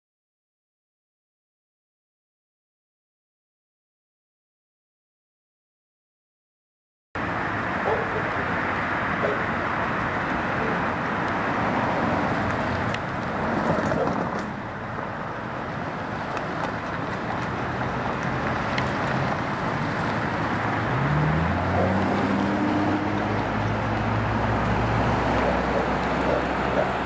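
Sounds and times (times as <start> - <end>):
road traffic passing: 7.2 - 27.0
car engine rising in pitch: 17.5 - 27.0.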